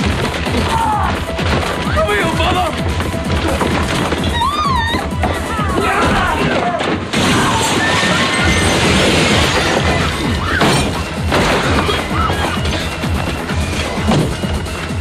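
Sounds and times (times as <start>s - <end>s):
glass smashing: 5.8s - 13.0s.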